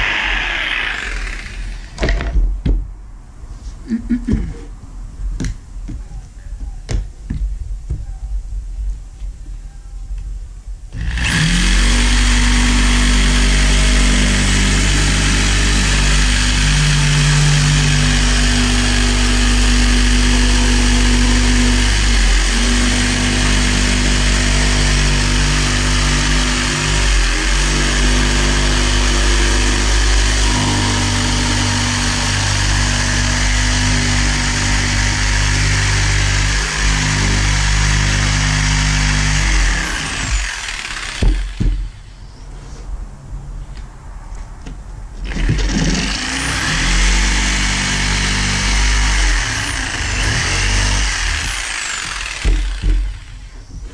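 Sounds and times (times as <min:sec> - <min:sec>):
jigsaw cutting plywood: 0:00.0 - 0:02.3, 0:11.0 - 0:41.8, 0:45.2 - 0:53.5.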